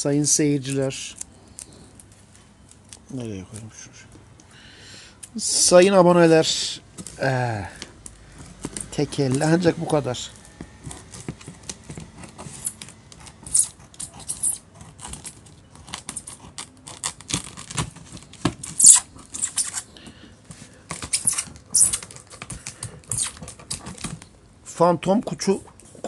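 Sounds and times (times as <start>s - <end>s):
scissors cutting packing tape: 10.8s - 19.9s, 21.0s - 24.3s.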